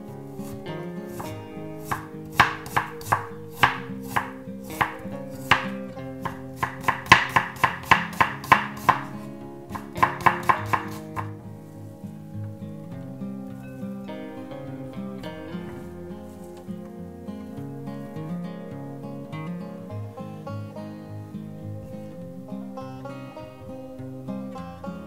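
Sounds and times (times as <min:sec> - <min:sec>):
knife knocking on wooden board: 0:06.3 - 0:09.0, 0:09.8 - 0:11.3.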